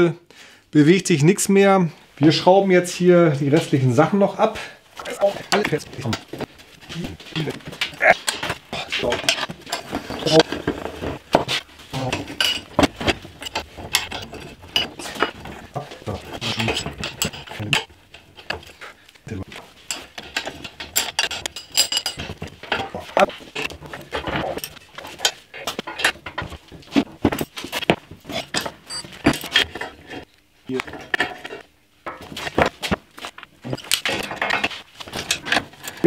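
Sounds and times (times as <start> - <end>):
wrenches clinking on metal: 6.9 - 30.2, 33.7 - 36.0.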